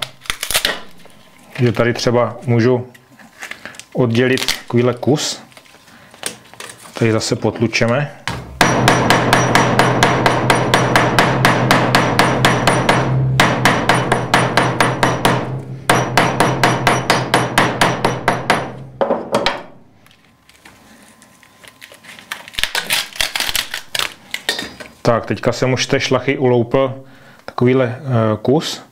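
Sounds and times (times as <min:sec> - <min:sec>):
hammer beating sinew on anvil: 0:08.3 - 0:19.7.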